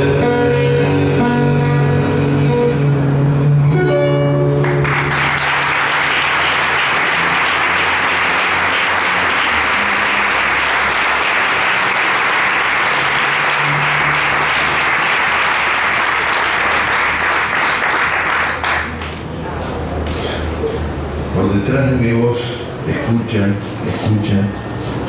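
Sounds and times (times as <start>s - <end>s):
audience applauding: 4.6s - 19.2s.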